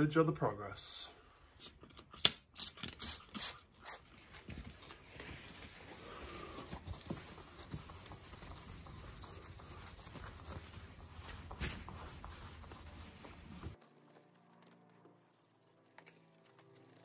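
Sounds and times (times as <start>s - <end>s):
spray bottle spritzing: 2.6s - 4.0s.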